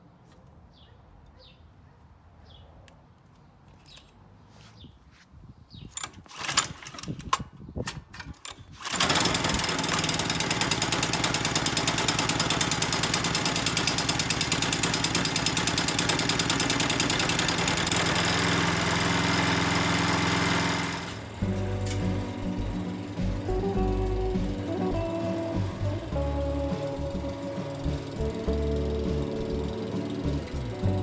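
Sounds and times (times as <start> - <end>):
handling knocks and clicks: 3.2 - 4.2, 5.8 - 9.0
mower engine running: 8.7 - 31.0.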